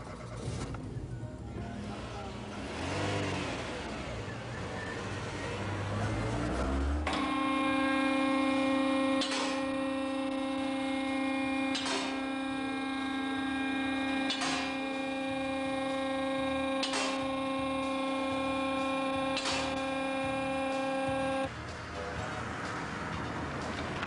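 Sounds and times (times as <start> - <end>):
lift motor hum: 0.0 - 22.3
sharp metallic latch click: 9.2 - 9.7, 11.7 - 12.2, 14.3 - 14.8, 16.8 - 17.3, 19.4 - 19.8.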